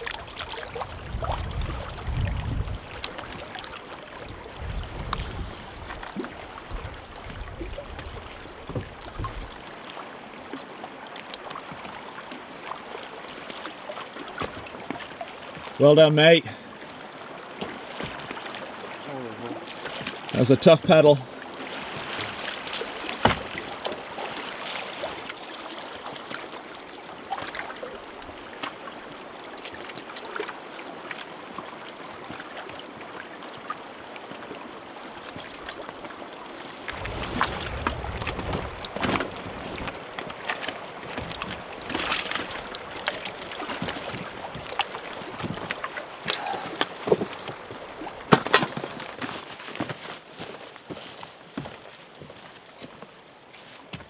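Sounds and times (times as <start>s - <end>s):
waves lapping against rocks: 0.0s - 54.0s
wind: 0.0s - 54.0s
low rumble: 36.9s - 40.0s.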